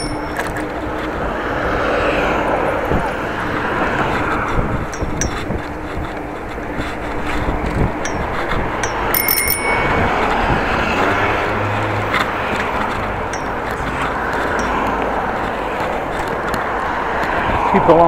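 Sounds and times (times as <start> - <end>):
bicycle bell ringing: 0.0 - 1.0, 4.9 - 5.6, 7.9 - 11.7, 12.3 - 16.3
wind and road rush: 0.0 - 18.0.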